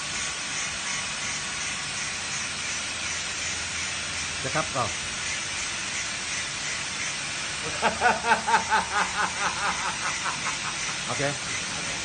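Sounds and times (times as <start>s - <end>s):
steady background hiss: 0.0s - 12.0s
man laughing: 7.6s - 11.1s.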